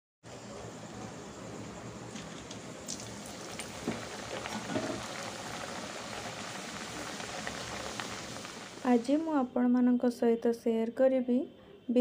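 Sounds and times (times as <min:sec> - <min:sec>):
pastry deep-frying in hot oil: 0:00.3 - 0:09.5.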